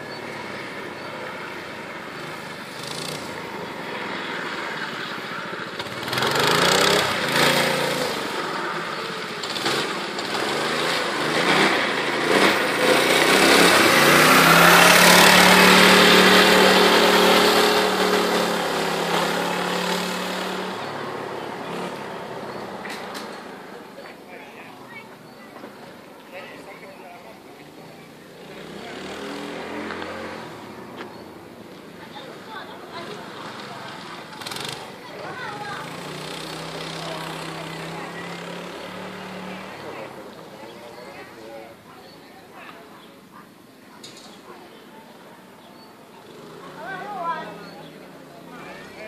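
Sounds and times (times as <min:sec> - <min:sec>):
small engine revving: 0:00.0 - 0:24.2, 0:27.8 - 0:41.4.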